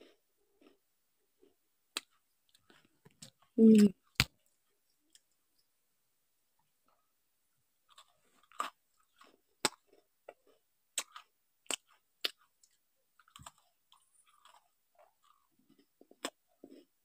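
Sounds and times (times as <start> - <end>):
biscuit crunching: 7.9 - 16.9.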